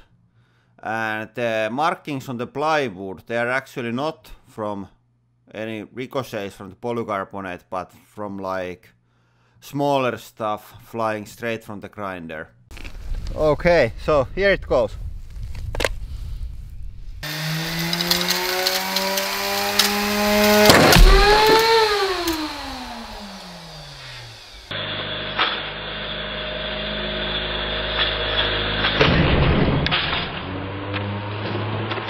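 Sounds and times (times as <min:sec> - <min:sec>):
grinding disc bursting with bang: 0:17.2 - 0:24.7, 0:28.8 - 0:30.5
grinder motor whining: 0:17.2 - 0:29.0
sharp crack of disc breaking: 0:17.6 - 0:23.3.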